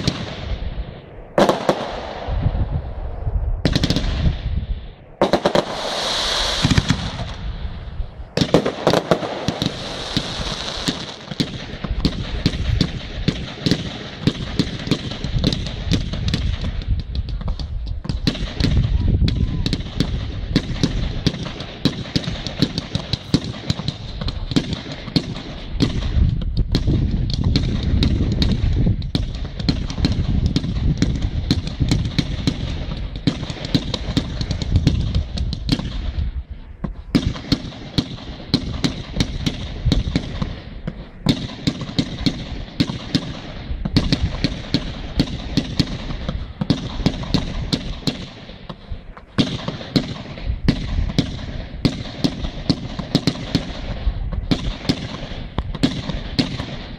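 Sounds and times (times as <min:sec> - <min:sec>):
fireworks barrage: 0:00.0 - 0:56.9.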